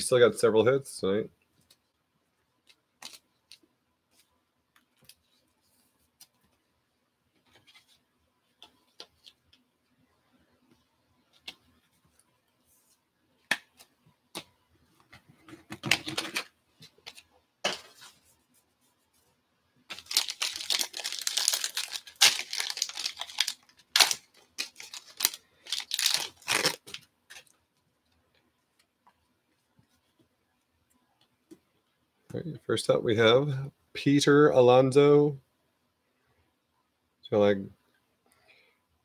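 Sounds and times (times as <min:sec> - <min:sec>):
foil wrapper crinkling and tearing: 0:19.9 - 0:27.5.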